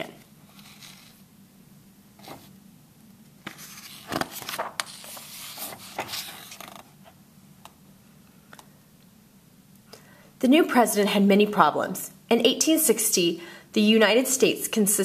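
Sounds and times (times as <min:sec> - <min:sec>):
book pages turning: 0:00.2 - 0:01.2, 0:02.2 - 0:02.6, 0:03.4 - 0:06.9.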